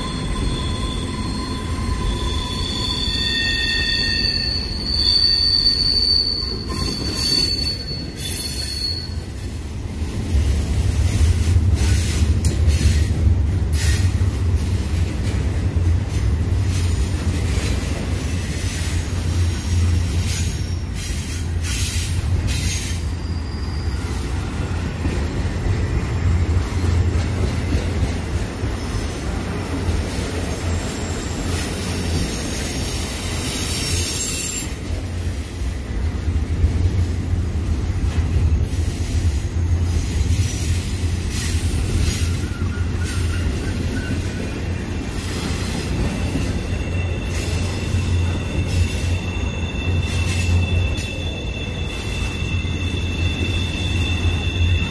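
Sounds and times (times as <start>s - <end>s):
high wheel squeal: 0.0s - 9.4s, 20.0s - 27.4s, 30.4s - 35.0s, 39.7s - 54.9s
freight train wheels rumbling: 0.0s - 54.9s.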